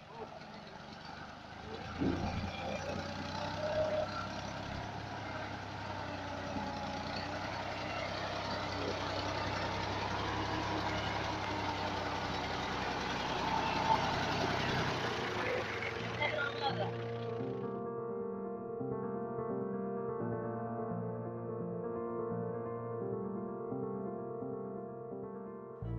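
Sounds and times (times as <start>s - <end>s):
tractor diesel engine running: 0.0s - 17.7s.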